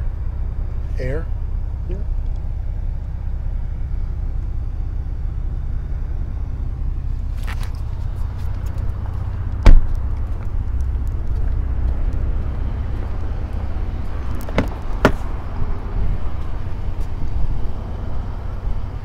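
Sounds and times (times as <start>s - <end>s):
low outdoor rumble: 0.0s - 19.0s
car door latch clicks: 9.6s - 10.0s, 14.4s - 15.4s.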